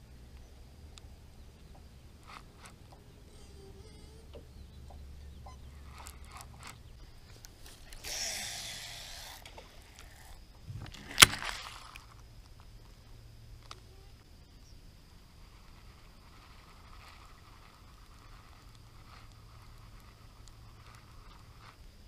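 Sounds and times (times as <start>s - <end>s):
fishing reel spool whirring: 1.9s - 22.0s
sharp loud reel click: 7.7s - 10.4s.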